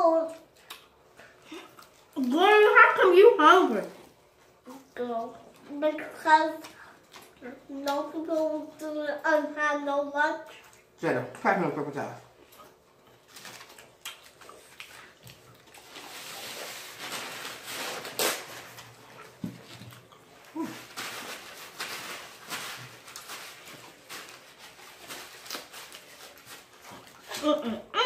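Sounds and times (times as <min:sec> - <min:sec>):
chewing and smacking while eating: 0:00.2 - 0:02.5, 0:04.0 - 0:08.8, 0:10.4 - 0:11.0, 0:12.3 - 0:16.9, 0:18.7 - 0:20.6, 0:22.8 - 0:27.4
paper towel crinkling: 0:13.2 - 0:19.8, 0:20.4 - 0:27.8.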